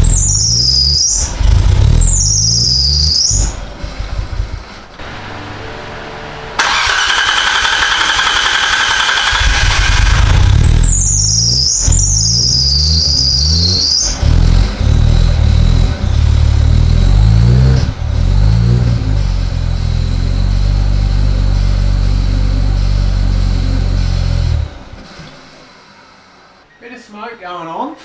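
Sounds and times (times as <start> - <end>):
high wavering squeal: 0.0 - 4.1, 10.7 - 16.2
car engine running roughly: 1.3 - 2.6, 3.3 - 5.4, 6.6 - 26.6.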